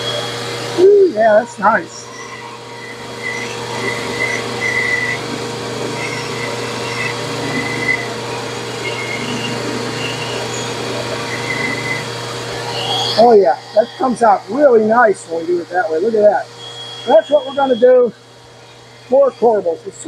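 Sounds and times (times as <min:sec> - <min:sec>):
drill press sanding wood: 0:00.0 - 0:20.0
shop vacuum rush of air: 0:00.0 - 0:20.0
short high whistles: 0:11.3 - 0:13.8, 0:16.6 - 0:18.0.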